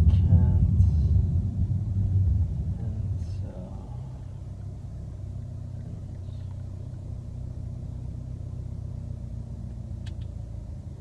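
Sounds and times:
car cabin rumble: 0.0s - 11.0s
faint steady hum: 0.0s - 11.0s
small click: 10.0s - 10.4s.

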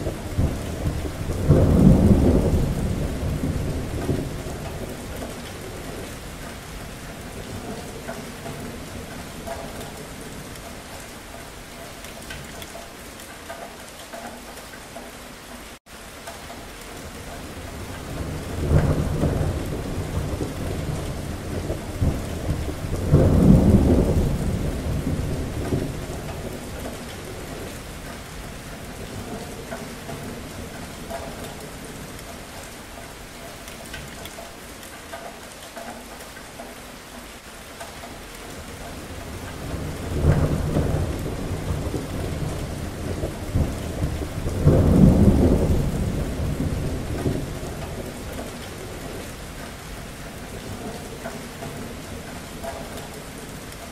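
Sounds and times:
rolling thunder: 0.0s - 6.4s, 17.5s - 32.4s, 38.5s - 53.9s
steady rain: 0.0s - 53.9s.

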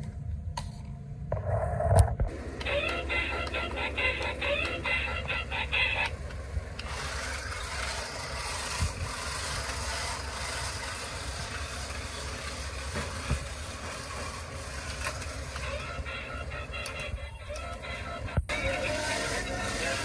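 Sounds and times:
toy car motor whirring: 2.6s - 20.0s.

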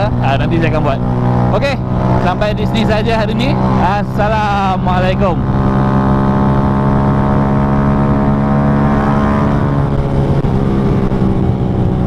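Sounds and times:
motorcycle engine cruising: 0.0s - 12.0s
road and wind noise: 0.0s - 12.0s.

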